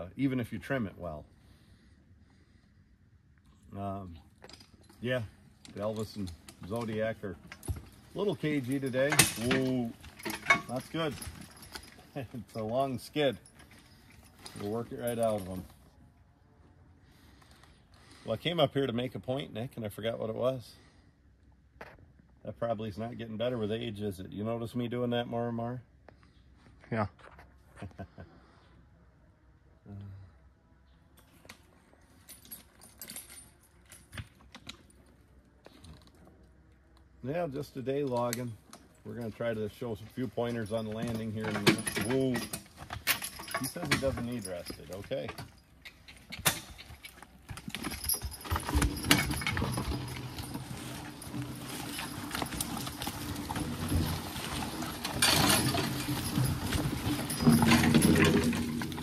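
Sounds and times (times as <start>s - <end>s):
harness hardware clinking: 4.2s - 15.9s, 31.2s - 36.4s, 38.0s - 59.0s
horse hoof steps: 4.3s - 15.9s, 38.0s - 59.0s.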